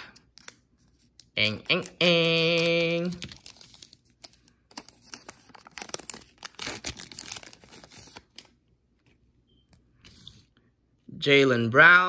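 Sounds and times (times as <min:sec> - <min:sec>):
card pack wrapper tearing and crinkling: 0:01.2 - 0:08.6.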